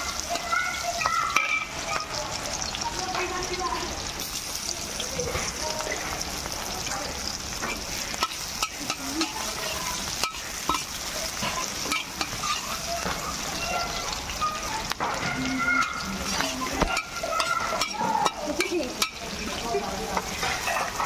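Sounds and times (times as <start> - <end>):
onions sizzling in hot oil: 0.0 - 21.0
metal spatula scraping wok: 7.2 - 21.0.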